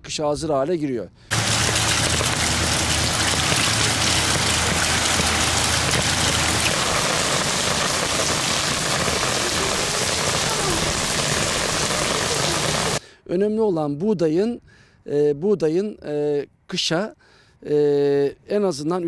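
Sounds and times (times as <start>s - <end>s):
low hum: 1.3s - 13.0s
rain on cobbled street: 1.3s - 13.0s
water running from drainpipe: 1.3s - 13.0s.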